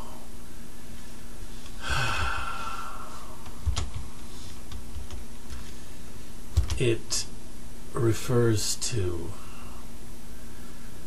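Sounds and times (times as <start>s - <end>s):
faint steady hum: 0.0s - 11.0s
man sighing: 1.7s - 3.4s.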